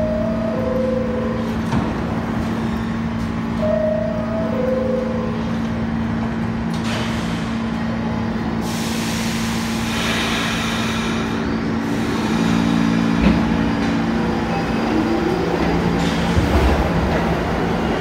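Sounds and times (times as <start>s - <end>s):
subway car electrical hum: 0.0s - 18.0s
air brakes hissing: 6.8s - 7.8s, 8.6s - 13.2s.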